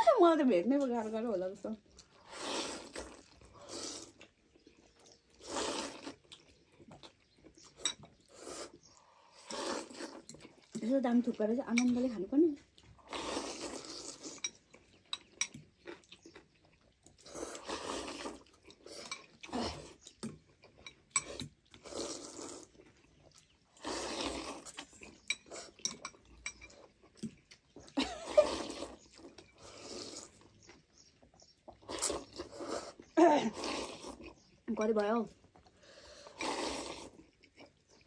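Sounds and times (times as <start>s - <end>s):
people slurping noodles: 2.0s - 4.4s, 5.3s - 6.3s, 8.2s - 10.9s, 13.0s - 14.4s, 17.1s - 20.0s, 21.2s - 22.8s, 23.7s - 26.0s, 27.9s - 30.6s, 31.8s - 34.5s, 35.7s - 37.5s
forks clinking on glass bowls: 25.3s - 26.8s.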